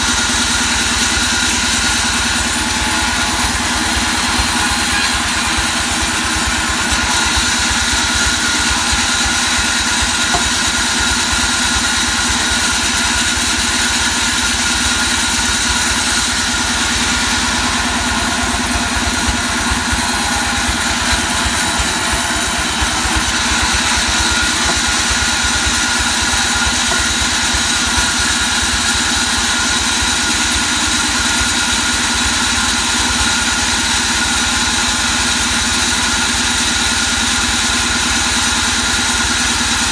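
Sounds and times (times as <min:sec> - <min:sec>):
band saw ripping wood: 0:01.2 - 0:29.8.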